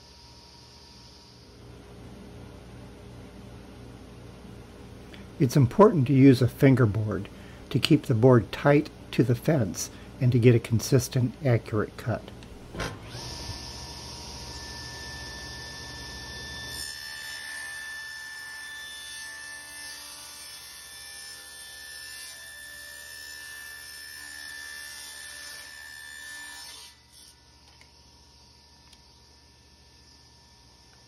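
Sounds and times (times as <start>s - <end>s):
table saw whining: 12.6s - 31.0s.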